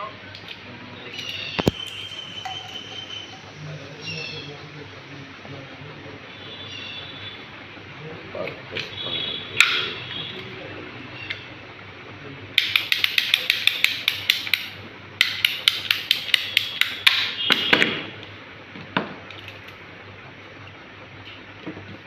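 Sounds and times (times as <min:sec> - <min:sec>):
ratcheting pipe cutter clicking: 0:12.6 - 0:17.2.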